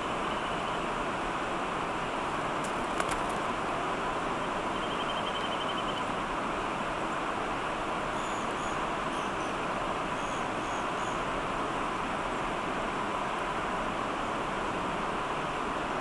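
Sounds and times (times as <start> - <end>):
small birds calling: 4.7 - 6.1.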